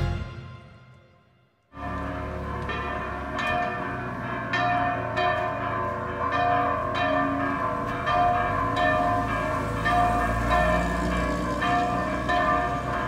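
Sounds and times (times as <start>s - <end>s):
church bells ringing: 0.0s - 13.0s.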